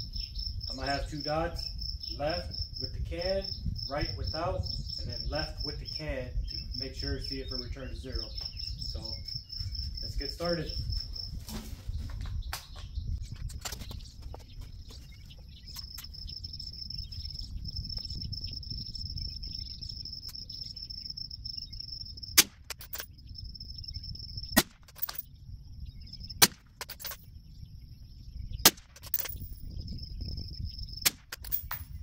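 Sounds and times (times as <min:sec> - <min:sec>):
suppressed rifle shots: 0:22.4 - 0:23.1, 0:26.4 - 0:27.2, 0:28.6 - 0:29.3.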